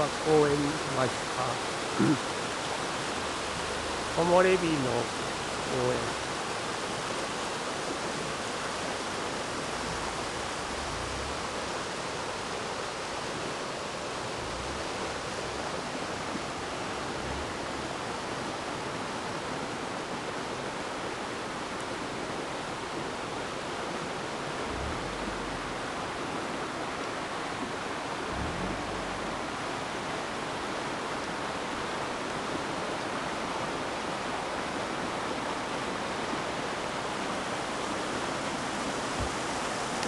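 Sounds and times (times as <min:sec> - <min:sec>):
river rushing over rocks: 0:00.0 - 0:40.0.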